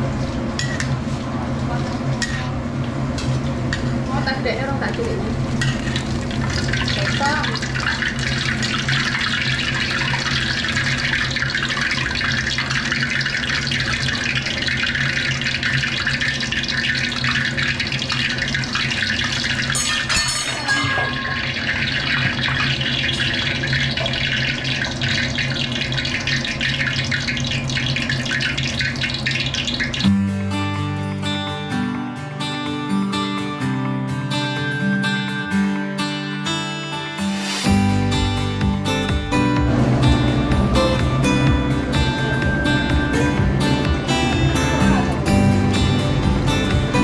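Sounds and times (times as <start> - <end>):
food sizzling in hot oil: 4.9 - 30.2
guitar music: 29.4 - 47.0
low hum: 37.7 - 47.0.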